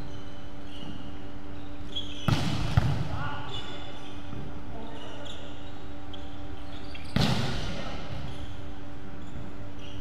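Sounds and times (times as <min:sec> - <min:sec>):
steady background hum: 0:00.0 - 0:10.0
volleyball smack echoing: 0:02.3 - 0:03.1.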